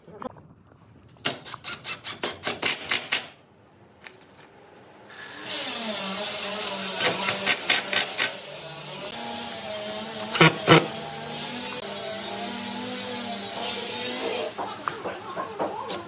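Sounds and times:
power tool running: 5.1s - 15.7s.

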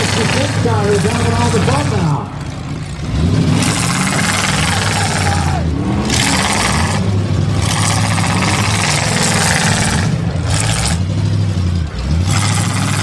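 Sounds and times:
car engines revving: 0.0s - 13.0s.

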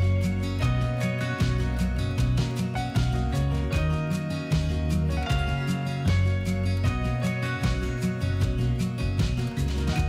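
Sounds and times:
music with steady beat: 0.0s - 10.0s.

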